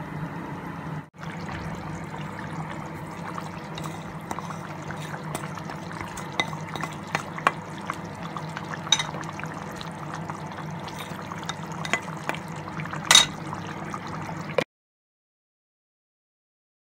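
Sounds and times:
curry bubbling in a pan: 1.2 - 14.6.

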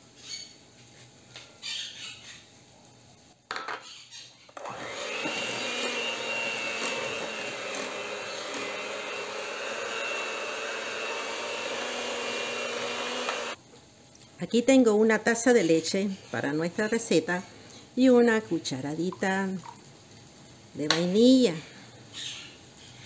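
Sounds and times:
electric hand mixer running: 4.6 - 13.6.

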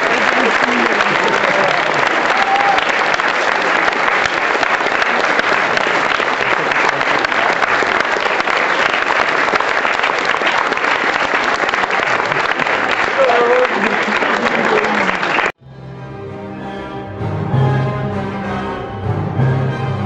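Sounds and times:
audience applauding: 0.0 - 15.6.

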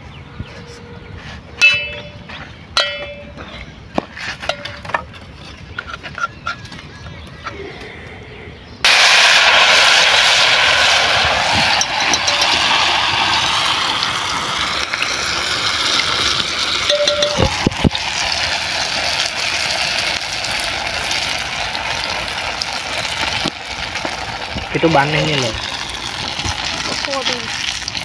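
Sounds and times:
batter sizzling in hot oil: 8.9 - 28.0.

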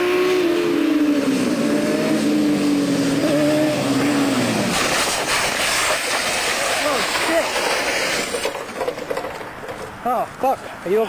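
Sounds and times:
motorcycle engines revving past: 0.0 - 5.1
hiss: 4.0 - 8.7.

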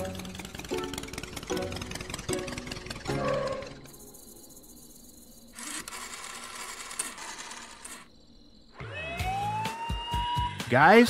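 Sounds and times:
rotary phone dial whirring: 5.5 - 8.2.

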